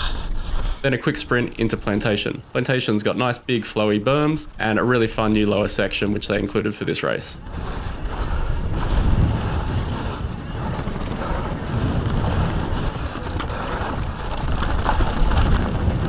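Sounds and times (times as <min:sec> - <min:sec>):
bike clicks and rattles: 0:00.0 - 0:16.0
tyres rolling on dirt trail: 0:00.0 - 0:16.0
wind buffeting microphone: 0:03.8 - 0:16.0.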